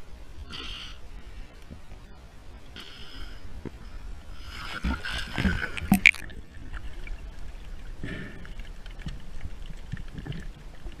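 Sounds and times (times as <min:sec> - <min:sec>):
muffled underwater water noise: 0:00.0 - 0:11.0
low underwater swishes: 0:01.1 - 0:11.0
faint underwater clicks: 0:04.8 - 0:11.0.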